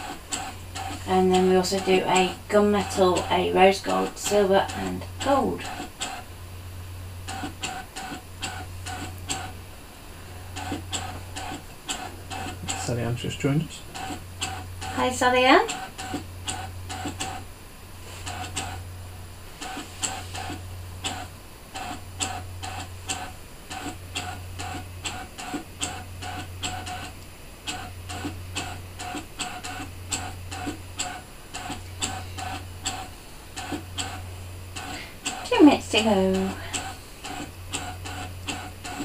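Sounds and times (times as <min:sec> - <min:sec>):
cutting machine motor humming: 0:00.0 - 0:06.3, 0:10.4 - 0:17.5, 0:18.2 - 0:39.0
fast irregular clicking: 0:00.0 - 0:06.3, 0:07.2 - 0:09.6, 0:10.5 - 0:17.5, 0:18.2 - 0:18.9, 0:19.6 - 0:39.0.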